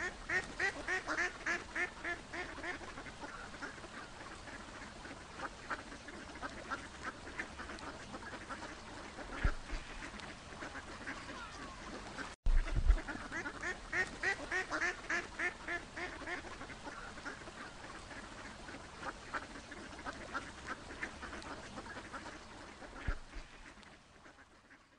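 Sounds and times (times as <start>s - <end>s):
ducks quacking: 0.0s - 24.9s
low thump: 12.5s - 13.1s.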